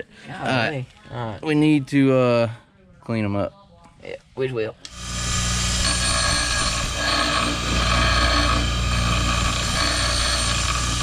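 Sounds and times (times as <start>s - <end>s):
bench grinder grinding steel: 4.9s - 11.0s.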